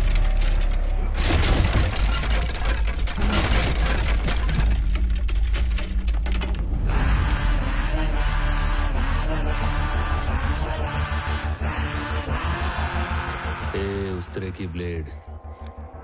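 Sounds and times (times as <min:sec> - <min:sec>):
deep bass drone: 0:06.3 - 0:16.0.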